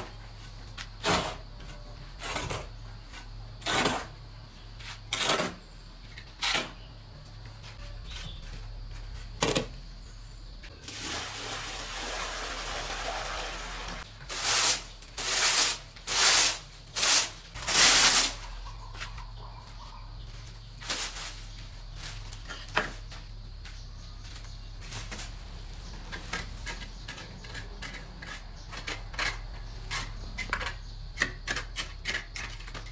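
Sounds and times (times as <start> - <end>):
broom sweeping concrete floor: 10.7 - 19.2, 20.3 - 27.2.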